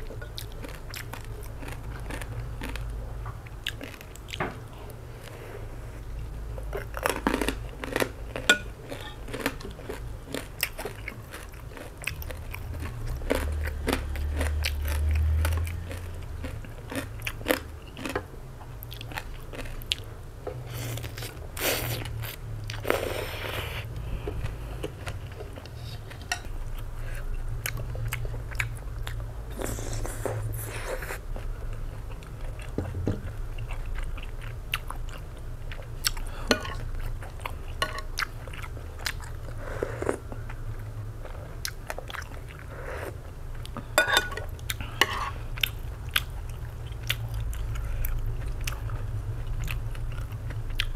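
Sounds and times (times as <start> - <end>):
steady low hum: 0.0 - 50.9
wet chewing and mouth clicks: 45.6 - 50.9.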